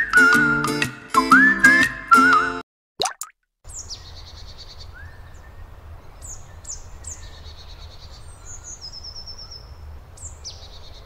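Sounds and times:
songbirds chirping and trilling: 3.7s - 11.0s.

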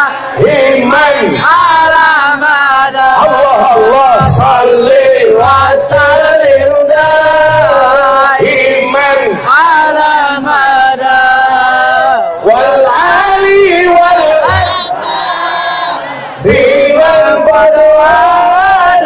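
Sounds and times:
person singing over sound system: 0.0s - 19.0s
low drum beats: 4.1s - 8.7s, 14.1s - 15.0s.

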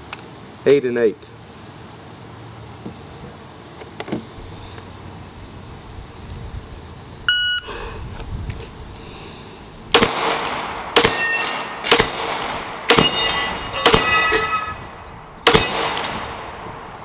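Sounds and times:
pistol shots: 9.9s - 14.6s, 15.4s - 16.6s
steel plate clanging: 11.0s - 14.9s, 15.5s - 16.5s.

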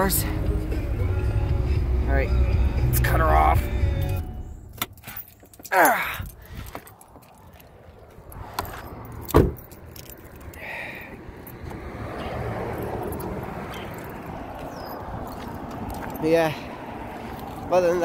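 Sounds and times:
keys jangling: 4.1s - 16.5s
car door slamming shut: 9.3s - 9.6s.

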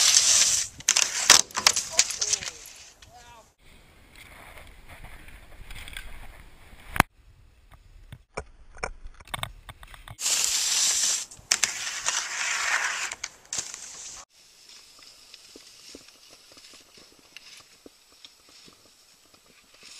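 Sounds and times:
skis scraping over snow: 0.0s - 3.0s, 10.2s - 19.9s.

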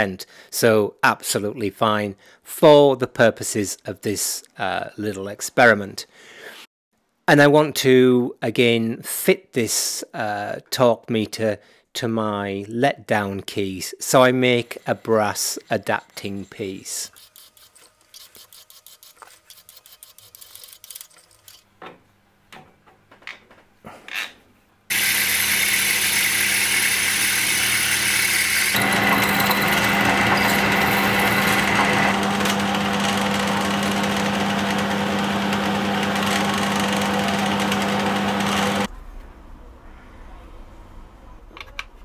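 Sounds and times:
lathe machining metal: 24.9s - 38.9s.

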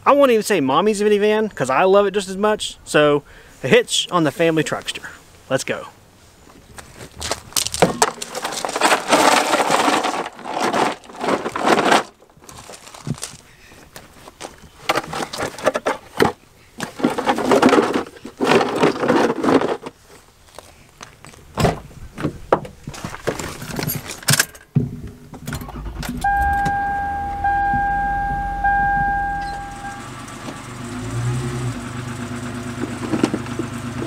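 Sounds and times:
plastic ramps clattering on gravel: 6.7s - 24.5s, 32.8s - 33.6s
minivan engine running: 25.6s - 34.0s
warning chime beeping: 26.2s - 30.2s.

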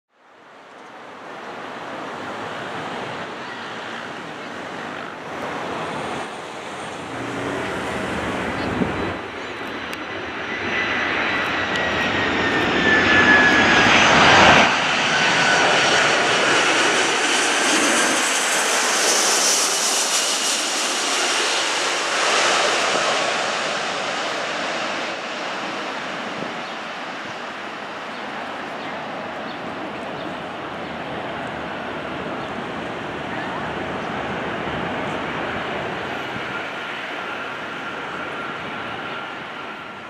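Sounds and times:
jet airliner roar passing overhead: 0.4s - 40.0s.

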